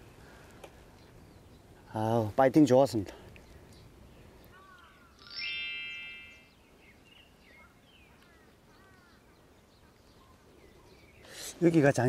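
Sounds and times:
small birds chirping: 0.0 - 12.0
shimmering chime sweep: 5.2 - 6.6.

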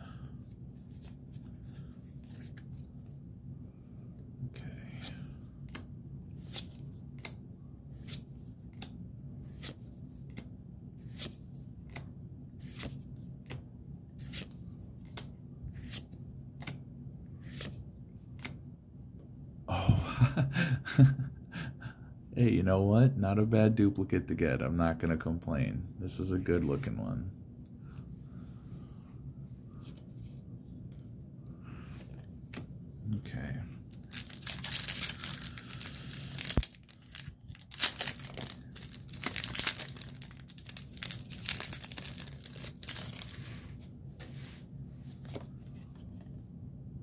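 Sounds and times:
low steady hum: 0.0 - 47.0
card handling noise: 33.7 - 44.4, 45.0 - 46.4.

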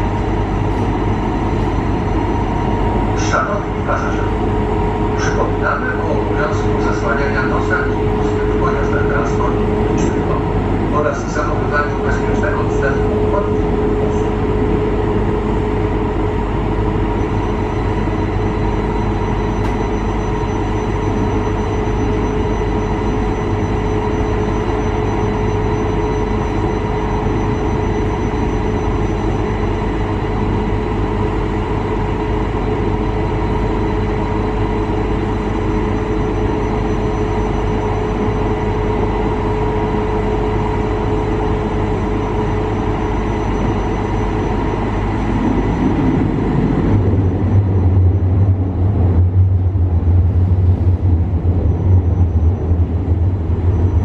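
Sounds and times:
train wheels rumbling on rail: 44.8 - 54.0.

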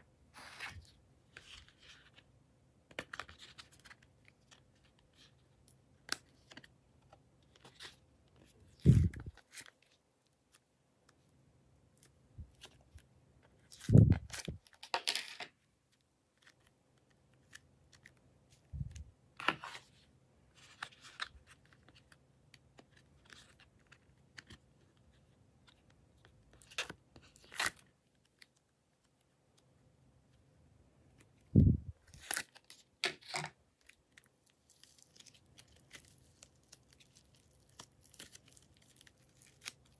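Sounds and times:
slime crackling and tearing: 34.6 - 39.9.

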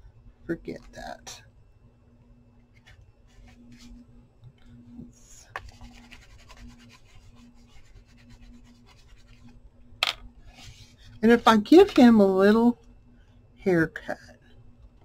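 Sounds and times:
paper rustling and scratching: 2.7 - 4.0, 5.6 - 9.5.

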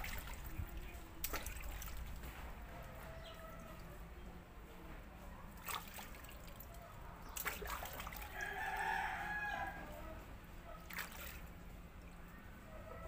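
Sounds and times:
hands splashing water in a basin: 0.0 - 2.7, 5.5 - 8.6, 10.8 - 11.6
rooster crowing: 8.2 - 10.0.

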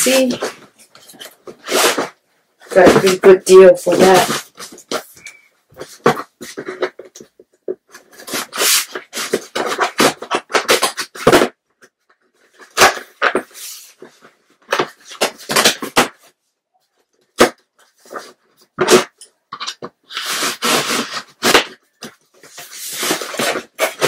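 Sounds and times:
scissors cutting package: 7.9 - 11.5, 18.2 - 24.0.

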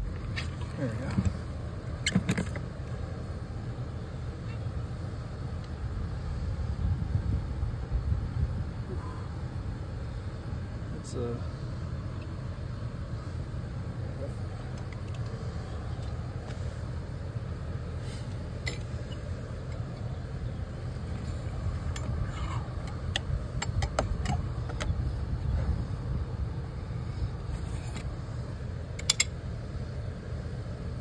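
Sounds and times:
steady low rumble: 0.0 - 31.0
light clicks and taps of pipe: 22.8 - 25.0, 29.0 - 29.3.

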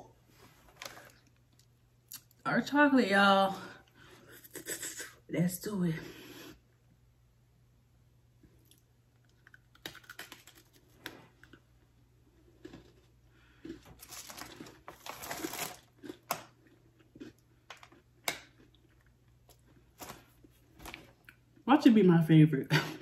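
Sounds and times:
person chewing cookie crunching: 0.8 - 2.4, 8.4 - 21.6.

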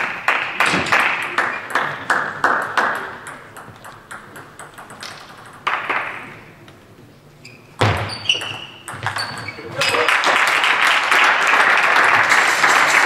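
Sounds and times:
table tennis ball bouncing: 0.6 - 6.5, 7.8 - 10.0
table tennis ball hits: 0.6 - 6.5, 7.8 - 10.1.

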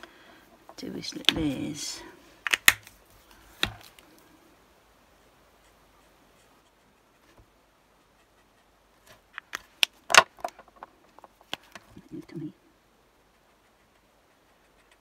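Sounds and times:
marker caps snapping on and off: 2.4 - 2.9
markers set down on desk: 10.1 - 10.8.

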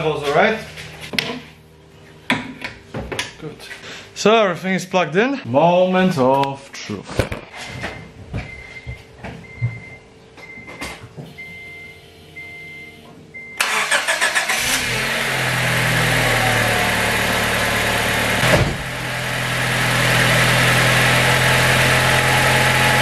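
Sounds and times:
car engine starting and idling: 13.4 - 23.0.

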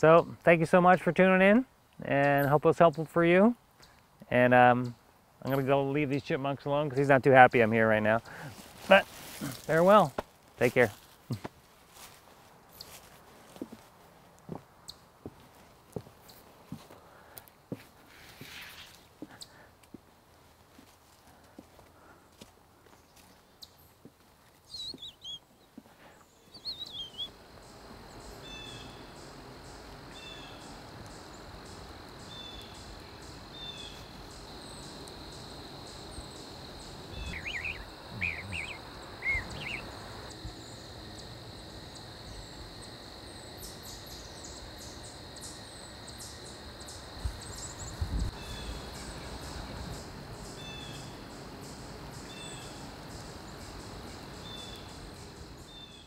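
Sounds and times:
high insect trill: 5.4 - 12.2, 26.1 - 56.0
chipmunk alarm chirps: 24.7 - 25.4, 26.5 - 27.3, 33.5 - 40.3
bird-like chirps: 24.7 - 27.3, 30.1 - 41.3.

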